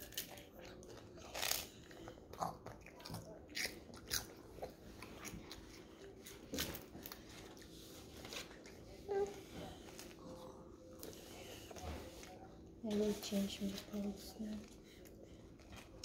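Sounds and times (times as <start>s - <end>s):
crunching ice cream cones: 0.0s - 8.9s.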